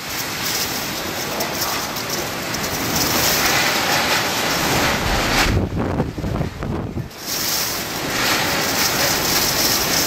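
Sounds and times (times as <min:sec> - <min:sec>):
driving rain: 0:00.0 - 0:10.0
strong wind rushing: 0:02.7 - 0:09.6.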